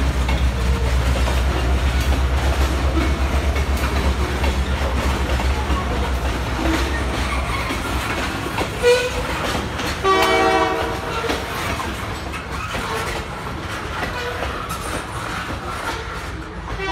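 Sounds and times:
train wheels clacking on rails: 0:00.0 - 0:16.9
wheel squeal: 0:04.4 - 0:09.5, 0:13.9 - 0:16.4
train horn chord: 0:10.0 - 0:11.4.

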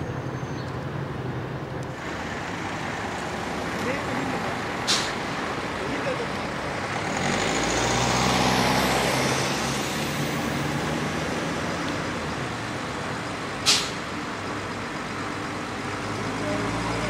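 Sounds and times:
bus engine running at low revs: 0:00.0 - 0:17.0
short sharp hiss: 0:04.9 - 0:05.2, 0:13.6 - 0:14.0.

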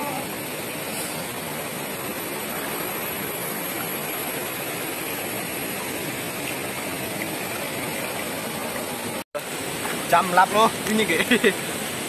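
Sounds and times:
river and waterfall rushing: 0:00.0 - 0:12.0.

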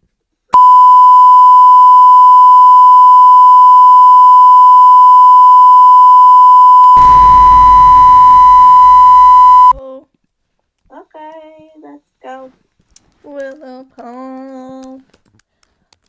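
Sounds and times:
censor bleep: 0:00.6 - 0:09.8.

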